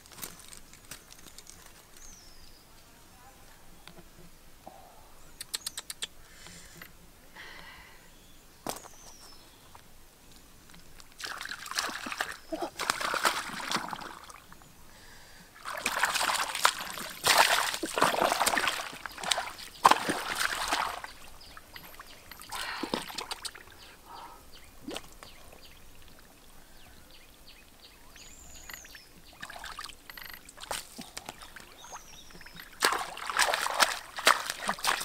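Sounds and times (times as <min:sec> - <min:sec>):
water dripping and trickling: 0:10.7 - 0:14.6, 0:15.6 - 0:24.0, 0:24.6 - 0:26.6, 0:27.3 - 0:35.0
hands splashing in water: 0:11.2 - 0:14.4, 0:15.6 - 0:23.6, 0:32.7 - 0:35.0.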